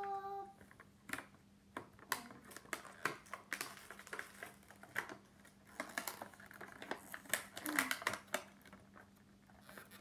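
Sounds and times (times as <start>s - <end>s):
packaging crackling: 2.0s - 10.0s.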